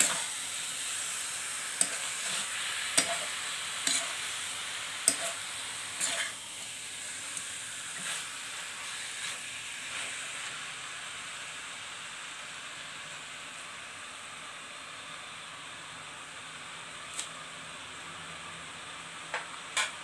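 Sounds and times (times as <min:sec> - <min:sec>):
spatula scraping a pan: 0:00.0 - 0:00.4, 0:01.7 - 0:06.4, 0:07.1 - 0:10.4
chicken sizzling in a wok: 0:00.0 - 0:20.0.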